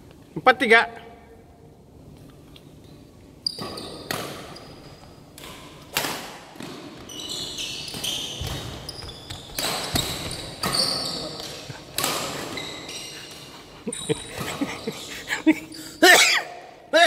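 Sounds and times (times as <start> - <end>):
sneakers squeaking on court floor: 3.4 - 5.9, 6.6 - 15.3
rackets hitting shuttlecock: 5.3 - 7.1, 7.9 - 12.6.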